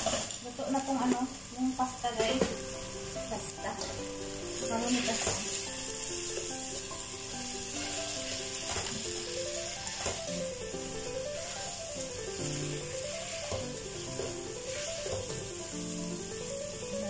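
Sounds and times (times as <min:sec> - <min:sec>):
food sizzling in oil: 0:00.0 - 0:17.0
gentle background music: 0:00.6 - 0:17.0
spatula scraping pot: 0:12.4 - 0:15.3.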